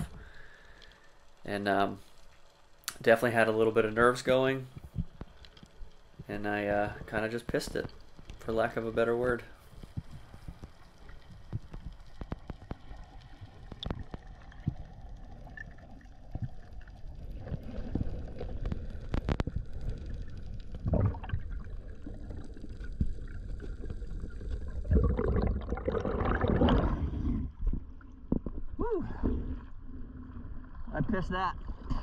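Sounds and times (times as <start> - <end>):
water splashing: 7.4 - 32.0
water rushing and gurgling: 10.9 - 32.0.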